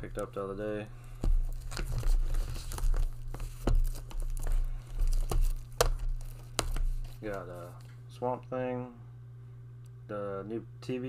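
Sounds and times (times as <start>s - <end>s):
plastic cases crinkling: 1.0s - 7.9s.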